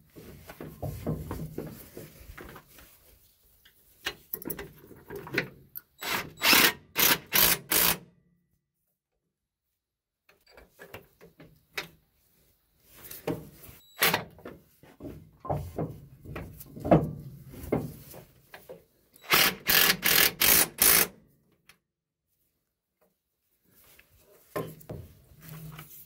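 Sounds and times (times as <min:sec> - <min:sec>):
loud rasping bursts: 0:06.0 - 0:08.0, 0:19.2 - 0:21.2.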